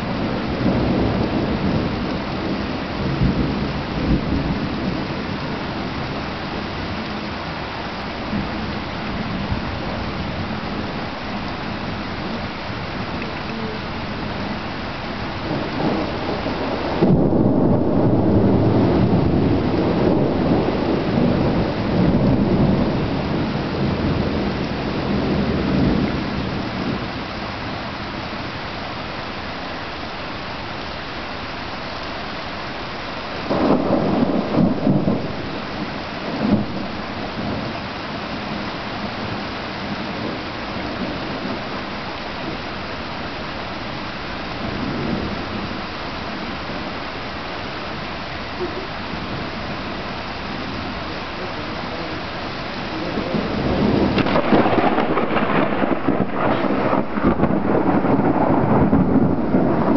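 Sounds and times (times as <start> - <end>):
rolling thunder: 0.0 - 27.8, 32.8 - 43.6, 44.5 - 47.1, 48.7 - 59.9
steady rain: 0.0 - 59.9
sharp thunder cracks: 15.4 - 24.4, 33.4 - 37.8, 53.0 - 59.9.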